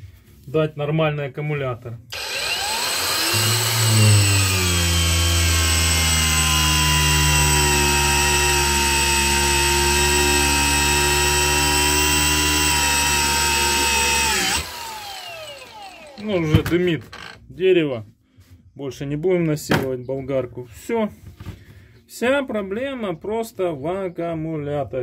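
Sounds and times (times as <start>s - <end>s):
angle grinder cutting wood: 2.1s - 17.4s.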